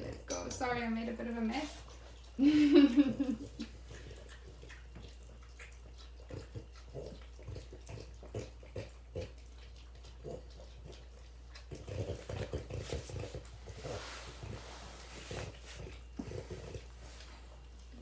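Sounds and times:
dogs licking spoons: 0:00.0 - 0:14.0.

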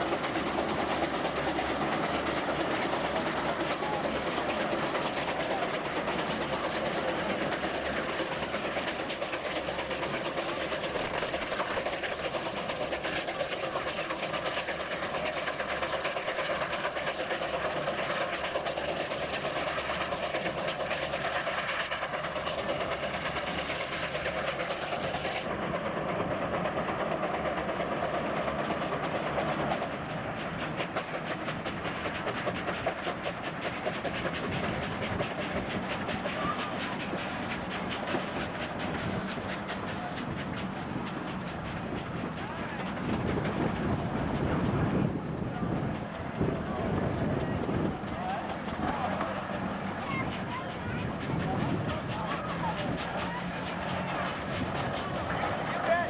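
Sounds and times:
tractor engine exhaust beating: 0:00.0 - 0:56.0.

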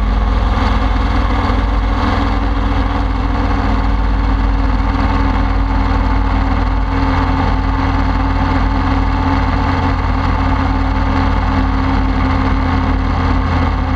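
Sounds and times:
aircraft engine and propeller: 0:00.0 - 0:13.9.

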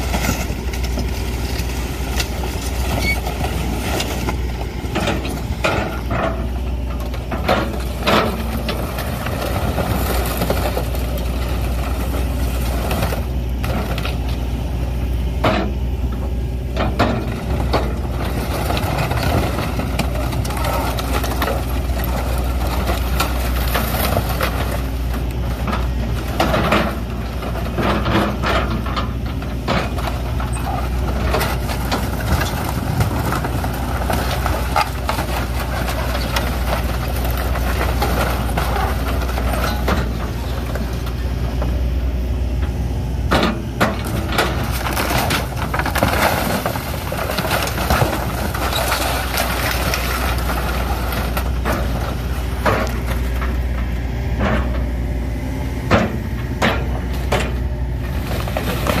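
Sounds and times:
excavator diesel engine running: 0:00.0 - 0:59.0
wood and sheet metal crunching: 0:16.8 - 0:41.4, 0:43.3 - 0:54.9.

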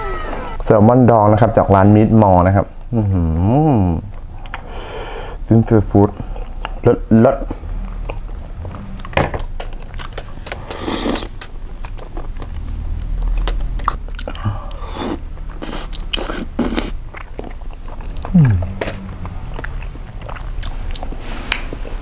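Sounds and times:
man chewing food: 0:04.1 - 0:04.8, 0:06.2 - 0:22.0
mouth smacks and clicks: 0:15.5 - 0:21.9.

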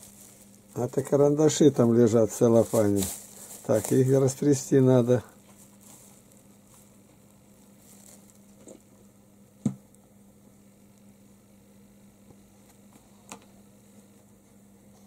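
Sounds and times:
faint rustling: 0:00.0 - 0:08.7
steady low hum: 0:00.0 - 0:15.0.

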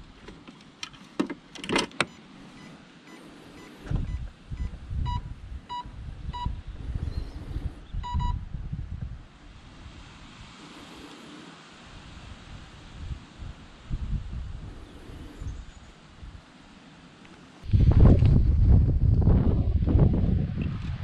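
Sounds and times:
short electronic beeps: 0:02.1 - 0:06.5, 0:08.0 - 0:08.4.

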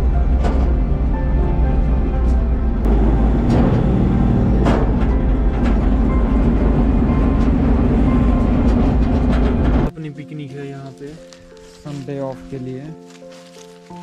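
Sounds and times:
road noise: 0:00.0 - 0:09.9
truck engine rumble: 0:00.0 - 0:09.9.

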